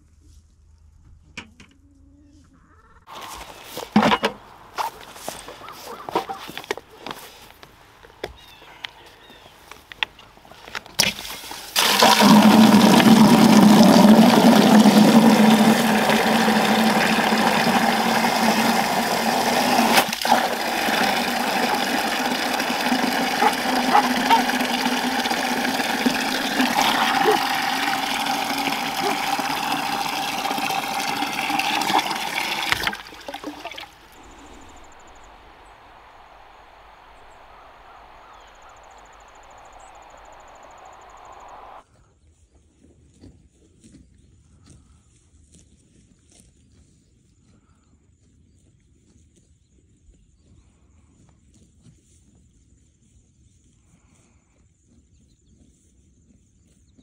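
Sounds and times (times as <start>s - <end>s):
hose water pouring into bucket: 3.1s - 5.5s, 11.0s - 35.3s.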